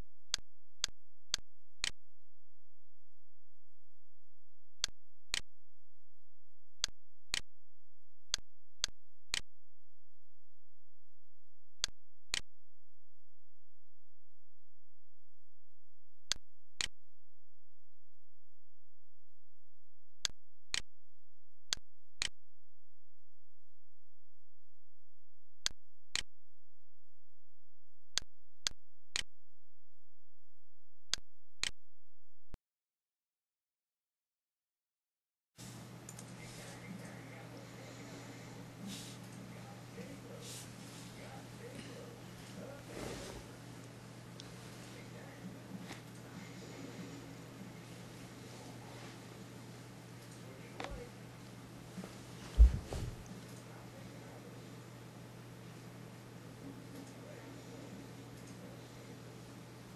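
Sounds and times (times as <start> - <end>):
low electrical hum: 35.6 - 59.9
computer mouse clicks: 36.1 - 36.4.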